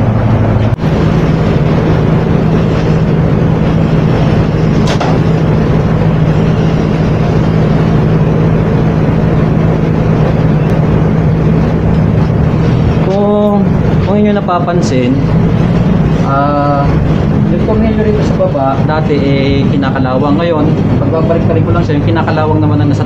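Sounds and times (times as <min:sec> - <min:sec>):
machine motor humming: 0:00.0 - 0:23.0.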